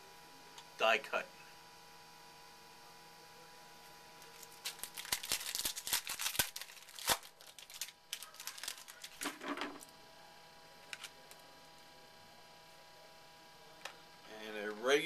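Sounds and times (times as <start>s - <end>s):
wrapper crinkling: 4.2s - 9.9s.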